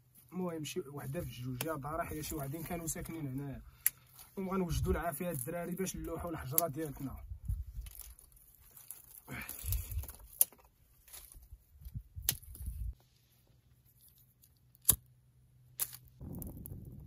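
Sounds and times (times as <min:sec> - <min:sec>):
dry twigs rustling and snapping: 0:01.5 - 0:15.1, 0:15.8 - 0:16.9.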